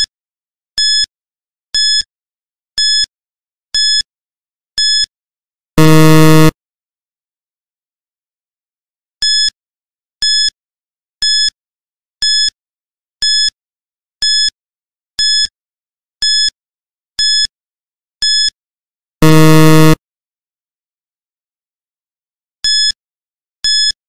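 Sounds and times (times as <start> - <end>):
short high-pitched electronic beeps: 5.8 - 6.5, 19.2 - 20.0
low buzzer: 5.8 - 6.6, 19.2 - 20.0.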